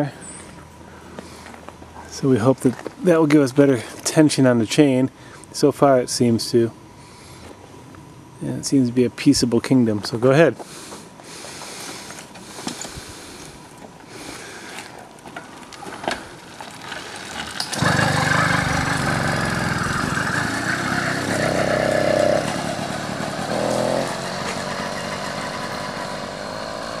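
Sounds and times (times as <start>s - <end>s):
small two-stroke engine running: 16.6s - 27.0s.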